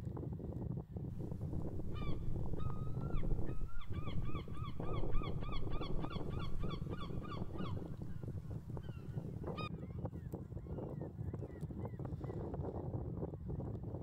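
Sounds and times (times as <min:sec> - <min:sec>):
steady low rumble: 0:01.1 - 0:09.6.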